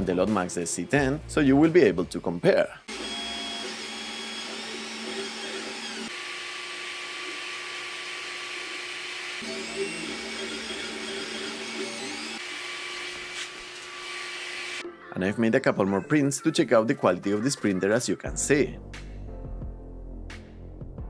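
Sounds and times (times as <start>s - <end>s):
stepper motors humming: 6.9s - 14.8s.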